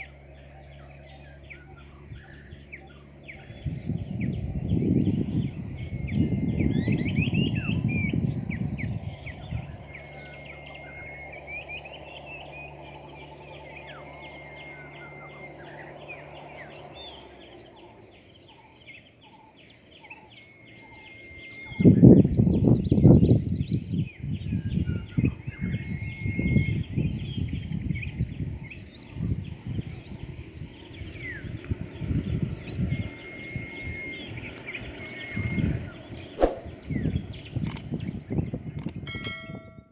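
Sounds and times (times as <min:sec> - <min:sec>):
wild birds chirping: 0:00.0 - 0:39.0
steady low hum: 0:00.0 - 0:39.9
held whistled bird note: 0:36.4 - 0:36.7.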